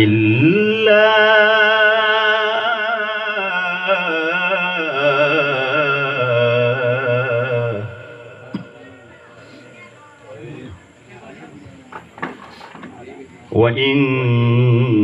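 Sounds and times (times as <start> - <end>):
man chanting melodic recitation: 0.0 - 9.1, 13.3 - 15.0.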